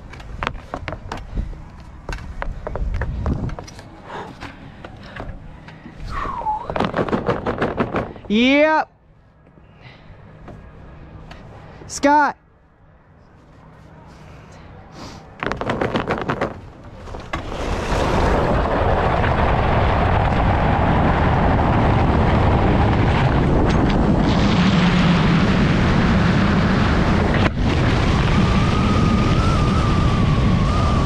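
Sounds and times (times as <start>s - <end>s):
wind rushing: 17.4s - 31.0s.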